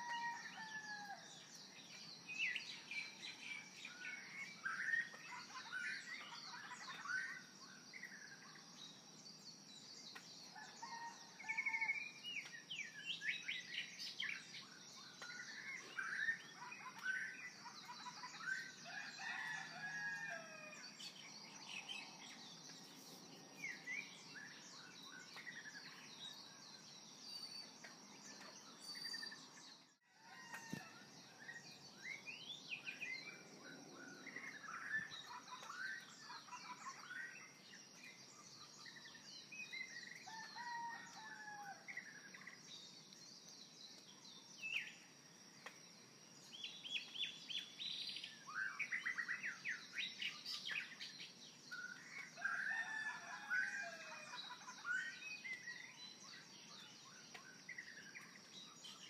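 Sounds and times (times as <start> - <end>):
birds chirping: 12.4 - 38.2.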